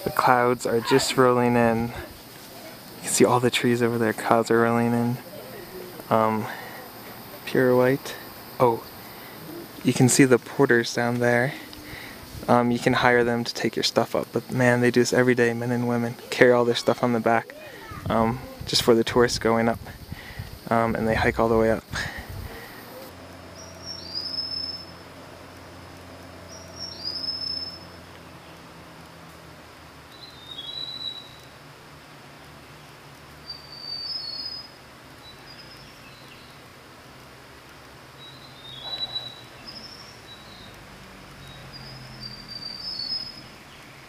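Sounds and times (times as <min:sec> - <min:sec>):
high chirping animal calls: 0:00.0 - 0:02.9, 0:05.2 - 0:10.0, 0:22.3 - 0:25.0, 0:26.5 - 0:28.0, 0:38.2 - 0:40.8, 0:41.4 - 0:43.6
faint forest ambience: 0:00.0 - 0:44.0
high whistled animal calls: 0:22.5 - 0:25.0, 0:26.5 - 0:28.0, 0:33.5 - 0:34.8, 0:38.3 - 0:40.7, 0:41.4 - 0:43.4.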